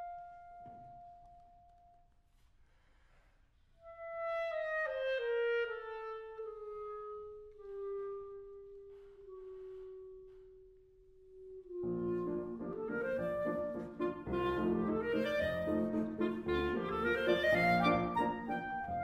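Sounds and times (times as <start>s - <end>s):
piano: 0.0s - 2.1s, 11.3s - 19.0s
solo clarinet: 3.8s - 19.0s.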